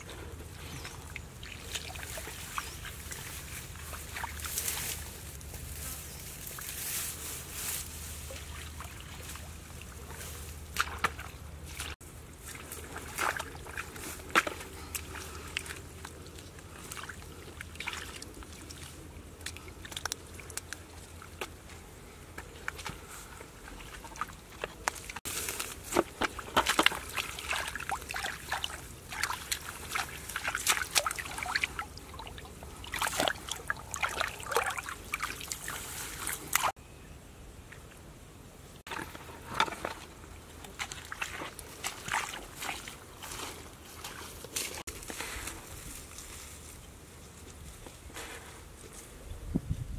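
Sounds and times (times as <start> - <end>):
dry grass rustling: 0.0 - 36.8, 38.9 - 49.9
hands splashing in mud puddle: 8.3 - 21.6, 22.4 - 36.7, 38.9 - 44.9.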